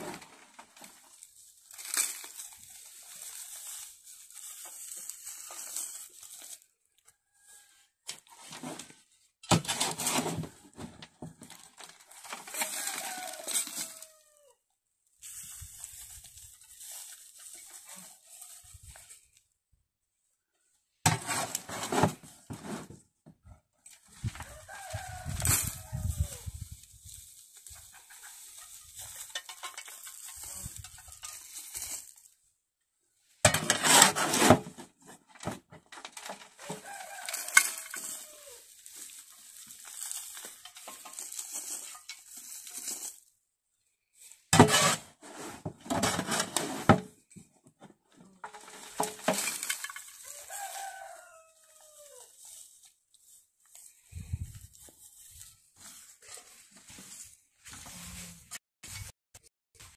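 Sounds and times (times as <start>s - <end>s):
shovel scraping wheelbarrow: 0.0s - 6.6s, 8.1s - 14.1s, 21.0s - 23.1s, 33.4s - 43.2s, 44.2s - 47.4s, 48.2s - 51.2s
rooster crowing: 12.5s - 14.6s, 24.3s - 26.4s, 36.6s - 38.7s, 50.2s - 52.3s.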